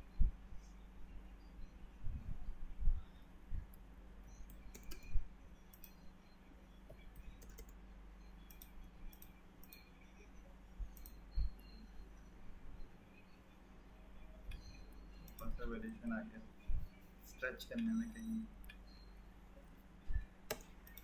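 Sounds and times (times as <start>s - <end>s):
computer mouse clicking: 4.4s - 6.0s, 6.9s - 7.8s, 8.4s - 10.0s, 10.9s - 11.6s, 14.5s - 15.6s, 20.5s - 21.0s.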